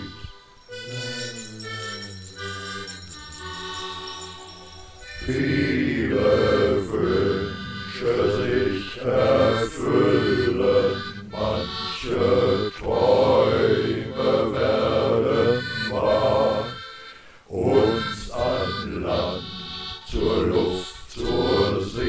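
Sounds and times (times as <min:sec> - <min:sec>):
instrumental accompaniment: 0:00.0 - 0:17.2
person singing slow chant-like song: 0:00.0 - 0:22.0.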